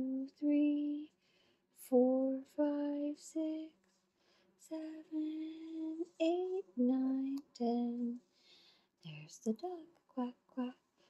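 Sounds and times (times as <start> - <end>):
woman singing long held notes: 0.0 - 1.1, 1.8 - 3.8, 4.6 - 8.2, 9.1 - 10.8.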